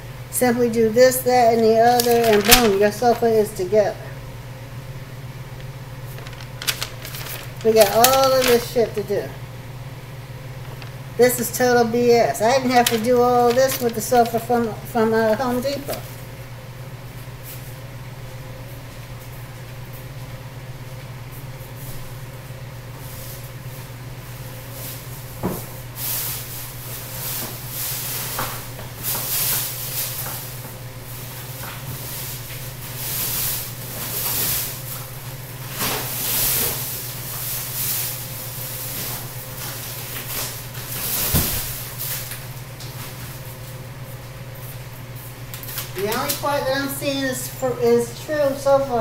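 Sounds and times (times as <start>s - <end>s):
steady low hum: 0.0s - 49.0s
plastic packaging rustling: 1.6s - 3.4s, 5.5s - 9.2s, 10.5s - 11.6s, 12.3s - 16.2s.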